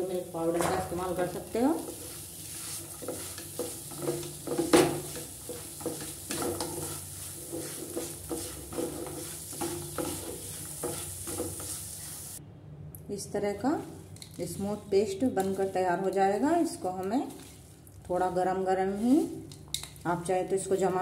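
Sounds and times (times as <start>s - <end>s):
spatula scraping a pan: 0.6s - 12.4s.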